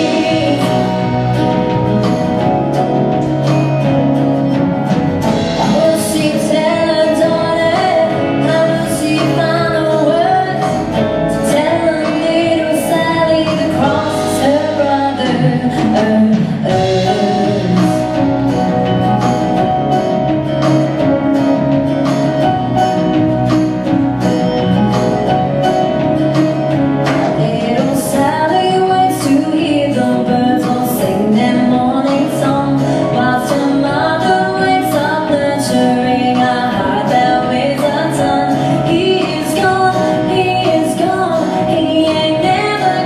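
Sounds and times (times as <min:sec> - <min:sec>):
woman singing: 0:00.0 - 0:02.5, 0:05.2 - 0:19.1, 0:27.0 - 0:43.0
acoustic guitars: 0:00.0 - 0:43.0
drum kit beat: 0:00.0 - 0:43.0.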